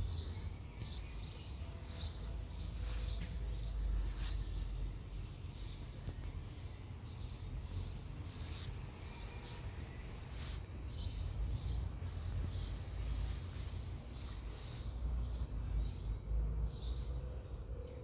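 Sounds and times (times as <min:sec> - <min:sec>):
small bird chirping: 0:00.0 - 0:17.1.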